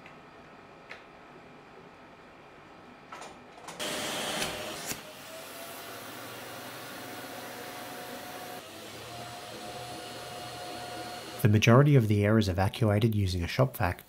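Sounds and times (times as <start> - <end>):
shop vac sucking air: 3.8 - 11.7.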